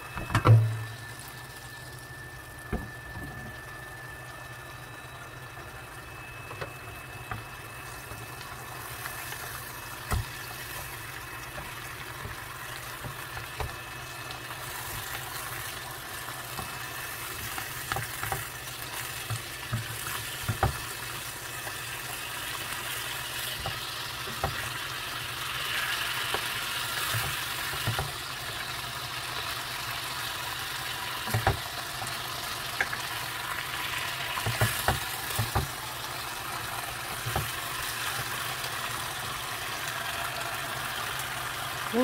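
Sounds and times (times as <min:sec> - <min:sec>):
fish sizzling in a frying pan: 0:00.0 - 0:42.0
wooden spatula knocking on pan: 0:19.2 - 0:20.8, 0:23.6 - 0:24.6, 0:31.3 - 0:31.6, 0:34.4 - 0:35.8.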